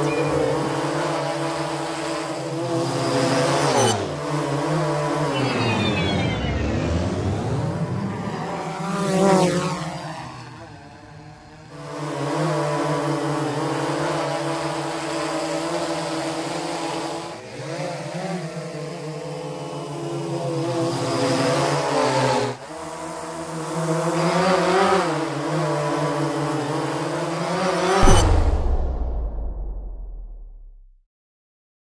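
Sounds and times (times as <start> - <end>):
drone rotors humming: 0.0 - 11.6.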